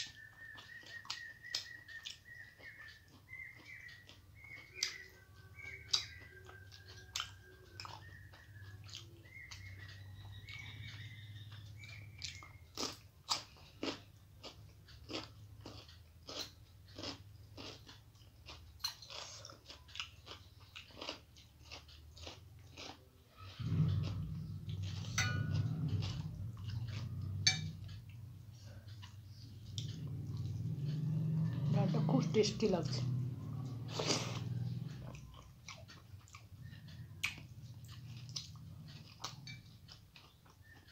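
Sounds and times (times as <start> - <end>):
birds chirping: 0.0 - 15.5, 23.3 - 40.9
crunchy chewing: 0.0 - 32.0, 32.9 - 40.9
low rumble: 23.6 - 35.3.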